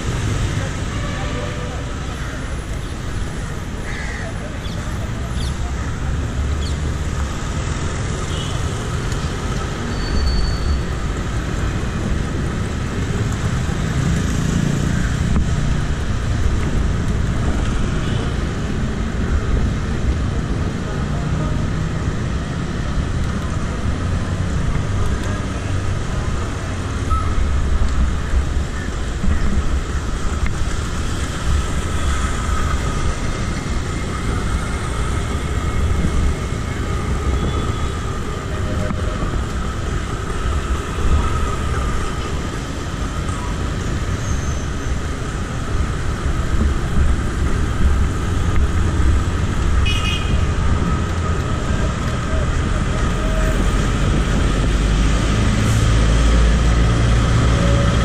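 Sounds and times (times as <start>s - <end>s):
road traffic: 0.0s - 58.0s
wind rumble on microphone: 51.8s - 55.4s.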